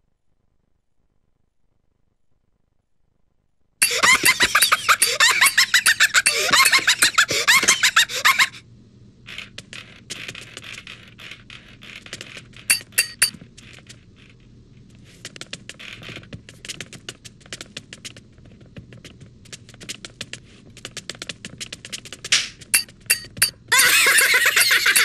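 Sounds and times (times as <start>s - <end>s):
high-pitched squeaky gibberish chatter: 3.8s - 8.6s, 23.8s - 25.0s
clicks and taps: 12.0s - 13.8s, 15.2s - 23.6s
sharp knocks: 22.3s - 23.5s.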